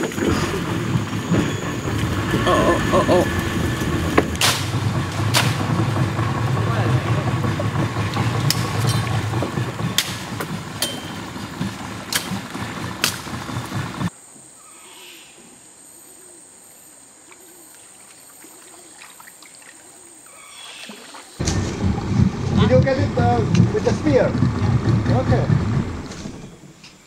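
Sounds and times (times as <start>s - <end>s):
river ambience: 0.0s - 27.0s
loud low rumble: 0.1s - 14.1s, 21.4s - 26.6s
machete chopping branches: 4.2s - 5.7s, 9.9s - 13.4s.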